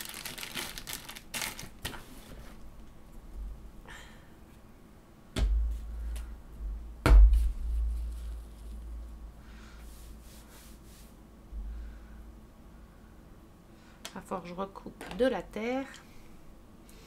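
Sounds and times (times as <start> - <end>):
hands rustling craft materials: 7.4 - 9.2.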